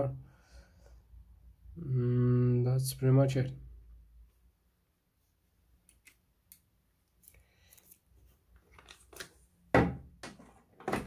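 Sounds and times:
loud knock on plastic: 9.8 - 11.0.

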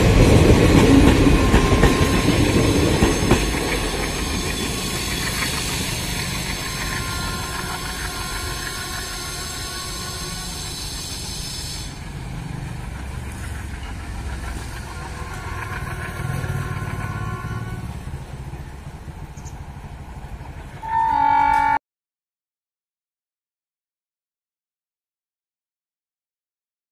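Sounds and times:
locomotive engine rumble: 0.0 - 20.8
train wheels on rails: 0.0 - 21.7
train horn: 1.2 - 3.3, 6.4 - 12.0, 14.8 - 18.0, 20.8 - 21.8.

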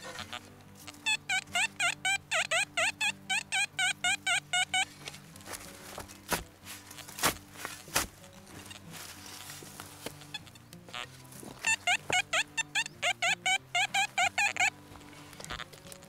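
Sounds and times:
metal detector beeping: 0.0 - 5.6, 8.2 - 16.0
shovel chopping into soil: 4.9 - 10.3.

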